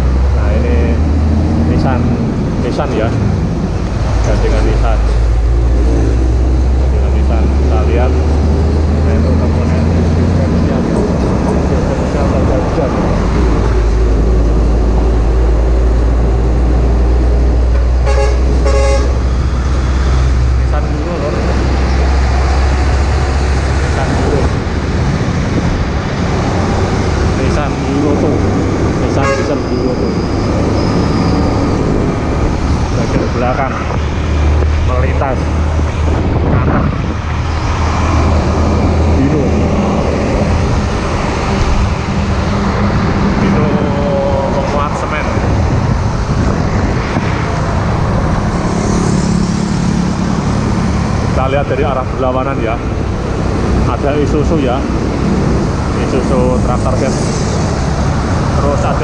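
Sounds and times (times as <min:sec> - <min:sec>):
road noise: 0:00.0 - 0:59.0
truck engine drone: 0:00.0 - 0:59.0
vehicle horn toots: 0:18.0 - 0:19.2, 0:29.2 - 0:29.7.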